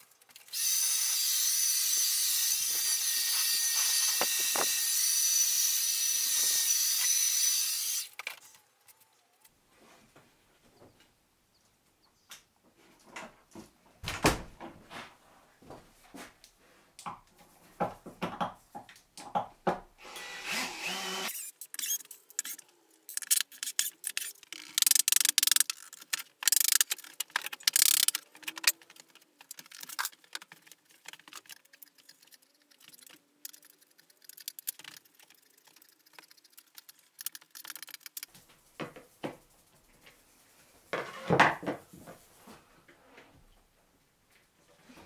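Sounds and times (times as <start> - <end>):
cordless drill running: 0.5 - 8.0, 20.0 - 21.5.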